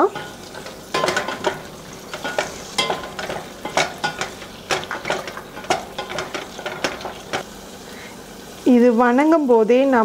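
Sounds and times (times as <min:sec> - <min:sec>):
onion sizzling in butter: 0:00.0 - 0:10.0
wooden spatula scraping a pan: 0:00.1 - 0:07.4.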